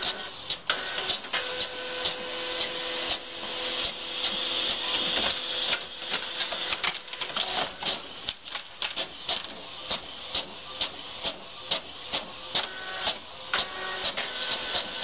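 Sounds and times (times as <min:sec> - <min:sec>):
printer whirring hiss: 0:00.0 - 0:15.0
printer clicking: 0:04.2 - 0:10.5.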